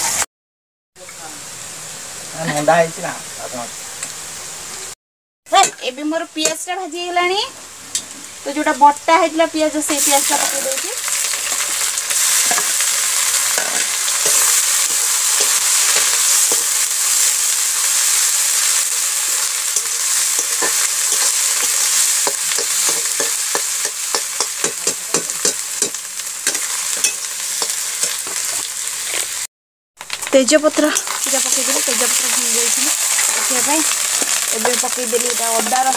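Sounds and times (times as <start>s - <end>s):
paste sizzling in hot oil: 6.2s - 35.9s
metal spatula scraping a pan: 13.4s - 16.7s, 19.7s - 25.2s, 25.8s - 29.3s.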